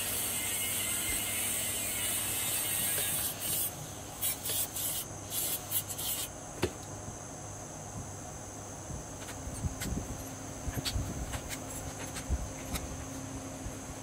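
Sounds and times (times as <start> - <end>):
angle grinder cutting steel: 0.0 - 5.0.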